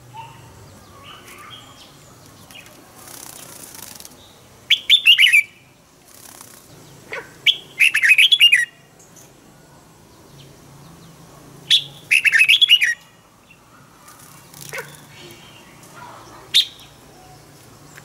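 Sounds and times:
bird singing whistled notes: 4.7 - 5.7, 7.4 - 8.9, 11.7 - 13.1, 16.5 - 17.5.

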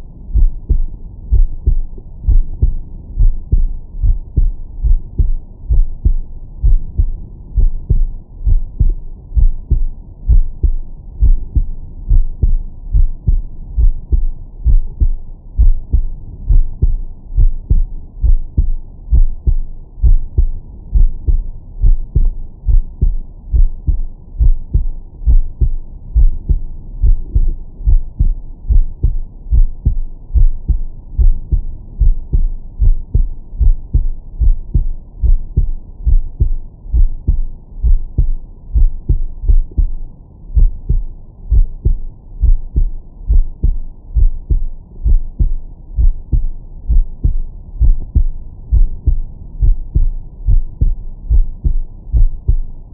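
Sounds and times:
heartbeat thumps: 0.3 - 52.8.

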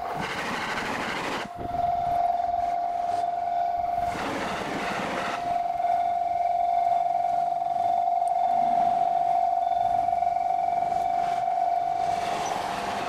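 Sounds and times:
level-crossing warning bell: 0.0 - 13.0.

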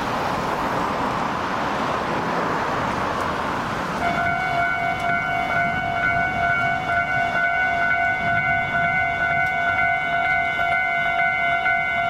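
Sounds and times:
level crossing alarm dinging: 4.0 - 12.0.

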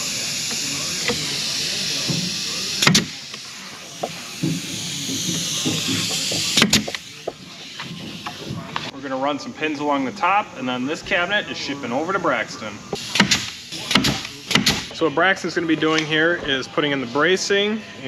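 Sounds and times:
pneumatic pin nailer firing: 0.0 - 8.5, 13.0 - 14.9
air hiss: 0.0 - 14.9.

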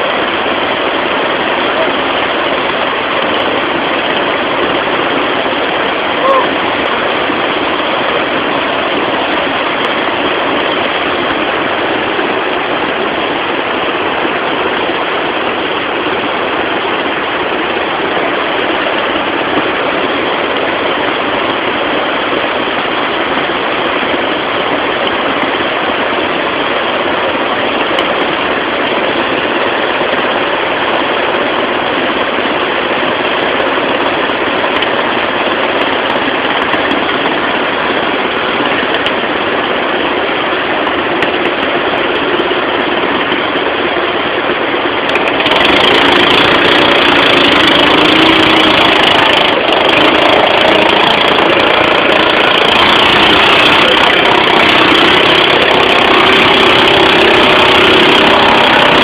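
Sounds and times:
motorboat engine: 0.0 - 59.0
rough river water rushing: 0.0 - 59.0.

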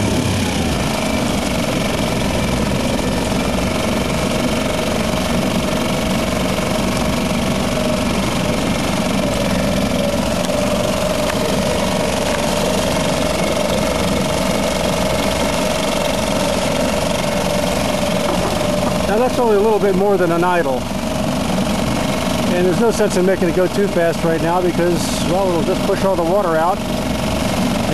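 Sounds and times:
outboard motor running: 0.0 - 27.9.

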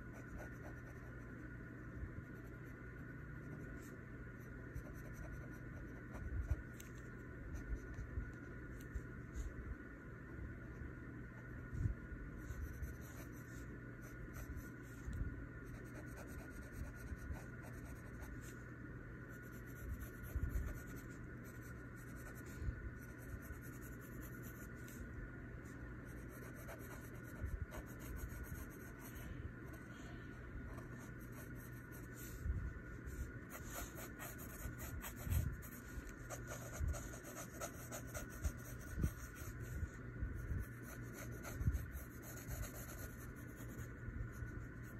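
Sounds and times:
faint steady hum: 0.0 - 44.9
pencil scratching on paper: 4.7 - 6.6, 12.4 - 14.9, 15.7 - 18.5, 19.3 - 25.0, 26.1 - 29.2, 33.2 - 39.7, 40.6 - 44.9.

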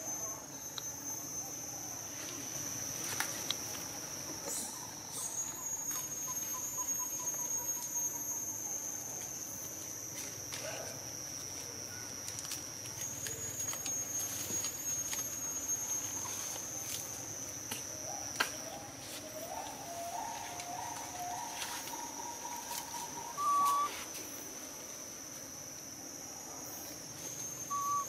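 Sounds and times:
insects droning: 0.0 - 28.0
faint thin calls: 19.5 - 24.1, 27.6 - 28.0.

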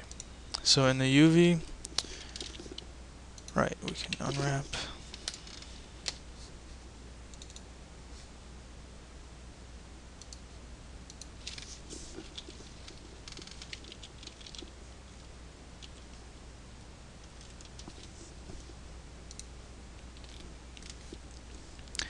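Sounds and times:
low steady hum: 0.0 - 22.0
computer mouse clicks: 7.3 - 7.7, 10.2 - 10.4, 11.1 - 14.7, 19.3 - 21.2.

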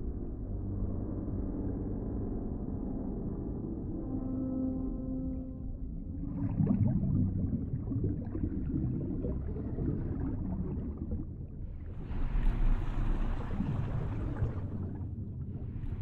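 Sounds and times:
underwater gurgling rumble: 5.7 - 16.0
water rushing: 6.2 - 16.0.

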